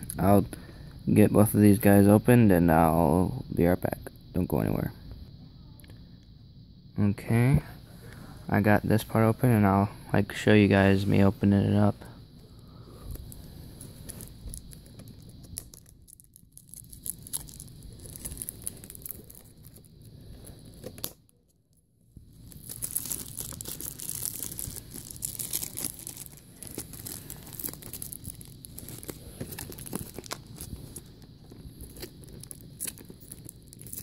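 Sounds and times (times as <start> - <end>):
plastic wrap tearing and crinkling: 13.2 - 19.9, 22.3 - 34.0.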